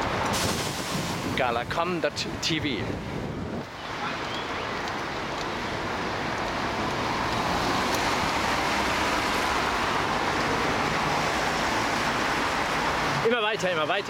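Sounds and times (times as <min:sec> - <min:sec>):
wind rushing: 0:00.0 - 0:03.8
tyres on asphalt: 0:00.0 - 0:14.0.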